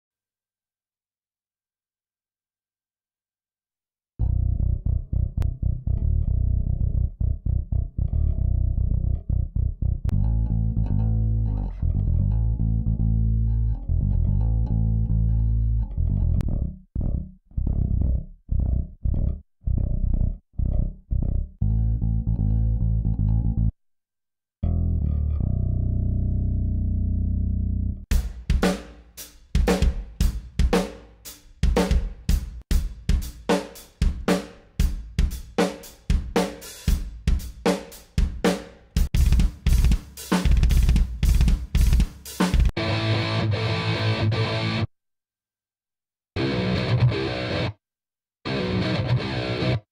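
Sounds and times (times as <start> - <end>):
bass guitar riff: 4.2 - 23.7, 24.6 - 28.8, 38.2 - 44.9, 46.4 - 47.8, 48.5 - 49.9
drum kit groove: 28.1 - 42.8.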